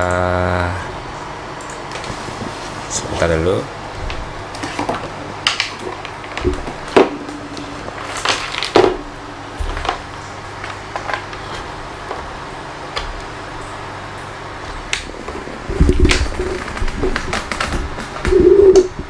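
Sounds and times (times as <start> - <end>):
low hum and hiss: 0.0 - 19.0.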